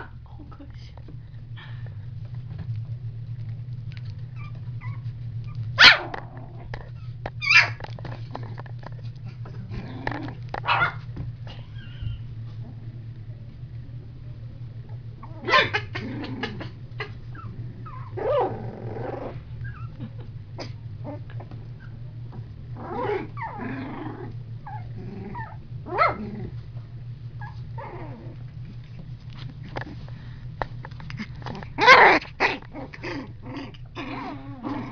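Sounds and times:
steady low hum: 0.0 - 34.9
puppies growling and yipping: 4.0 - 12.9, 15.2 - 26.7, 27.3 - 30.1, 30.9 - 34.9.

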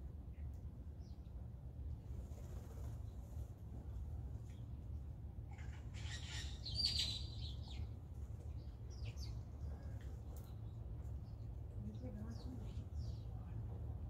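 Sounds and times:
low background rumble: 0.0 - 14.0
blue jay harsh rasping call: 5.6 - 7.4.

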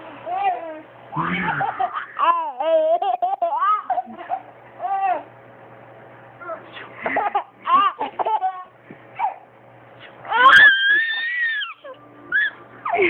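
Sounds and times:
baby laughing: 0.2 - 5.3, 7.0 - 9.4
baby high-pitched squeal: 10.3 - 12.6.

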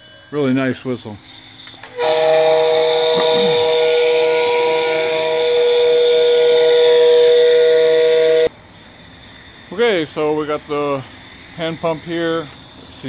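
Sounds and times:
steam hissing: 0.0 - 13.0
two-tone steam whistle blast: 1.3 - 8.6.

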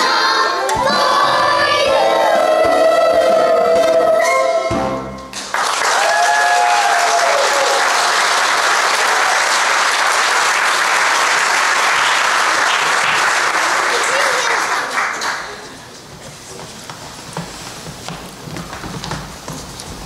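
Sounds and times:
children's chorus singing: 0.0 - 4.9
audience applause: 5.3 - 15.9.

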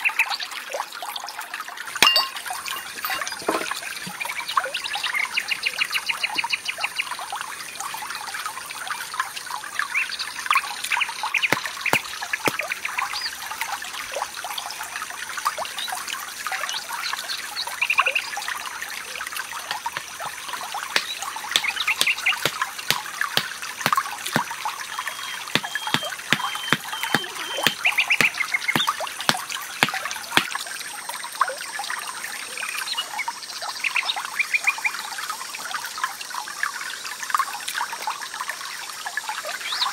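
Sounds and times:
stream trickling: 0.0 - 39.9
knocks on bamboo poles: 2.0 - 3.8, 19.7 - 24.5, 25.5 - 30.5
birds chirping: 19.7 - 30.4.

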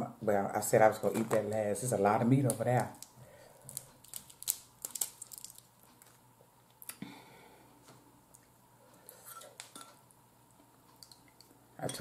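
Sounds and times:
crab shell cracking: 2.5 - 6.2.

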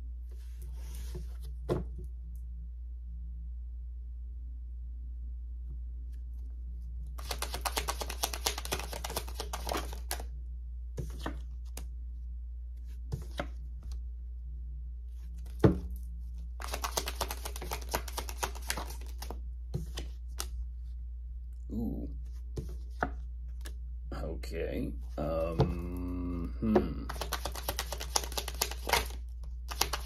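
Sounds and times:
steady low hum: 0.0 - 7.2, 9.0 - 30.0
cards being shuffled: 7.1 - 10.3, 11.0 - 11.9, 12.9 - 14.0, 15.2 - 20.6, 22.3 - 23.8, 27.1 - 30.0.

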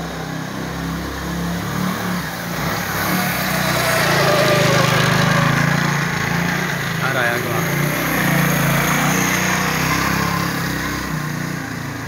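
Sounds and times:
small motorcycle engine running: 0.0 - 12.0.

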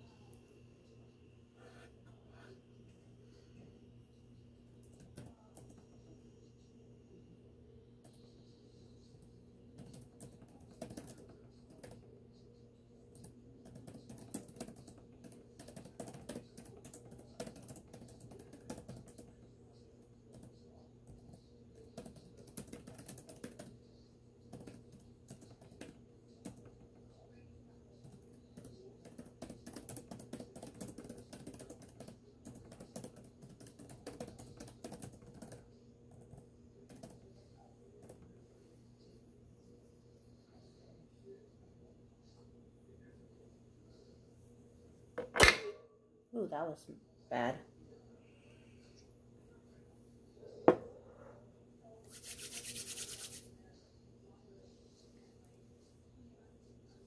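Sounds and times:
faint low hum: 0.0 - 57.0
laptop keyboard typing: 9.2 - 12.2, 13.1 - 19.5, 20.3 - 23.8, 24.4 - 26.8, 28.0 - 37.4.

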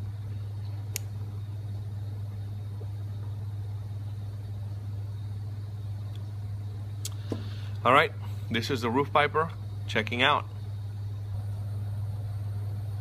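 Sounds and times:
air conditioning unit humming: 0.0 - 13.0
light click: 0.9 - 1.2.

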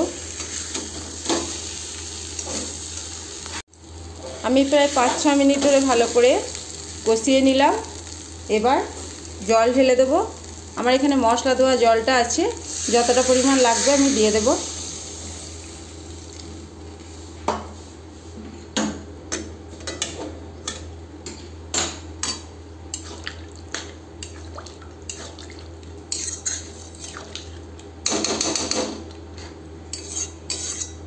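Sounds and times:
metal spatula scraping pan: 26.1 - 27.0, 29.9 - 31.0.

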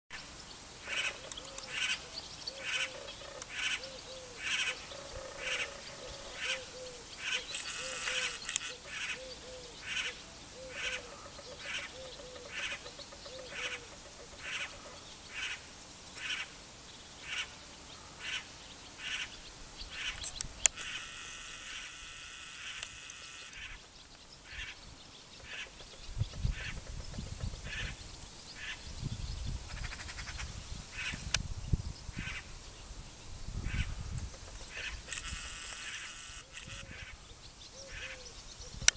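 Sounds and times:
cuckoo rasping calls: 0.8 - 16.5, 33.7 - 38.9
cuckoo chattering call: 0.9 - 15.6, 33.7 - 38.9.

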